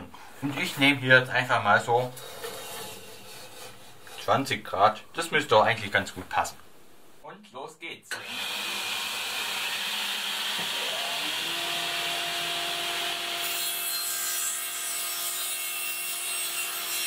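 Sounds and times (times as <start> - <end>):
table saw cutting board: 8.1 - 17.0.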